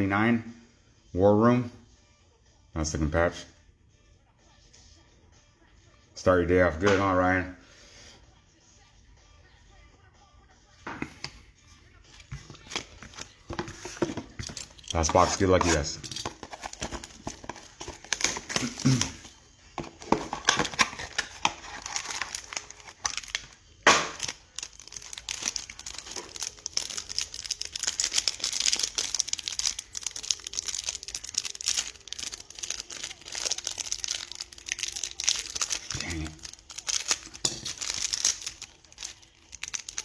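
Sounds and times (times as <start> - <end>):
cards shuffling: 12.1 - 40.0
plastic wrapping crinkling: 12.3 - 40.0
plastic wrapping ripping: 12.6 - 40.0.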